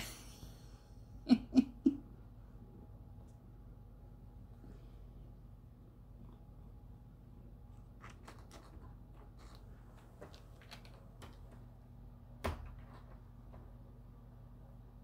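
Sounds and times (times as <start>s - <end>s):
cat scratching at door: 8.0s - 11.6s.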